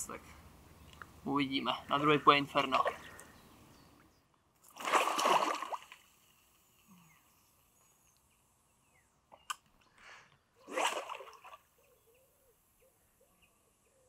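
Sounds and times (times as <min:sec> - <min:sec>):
water splash: 0:04.6 - 0:06.2, 0:10.7 - 0:11.7.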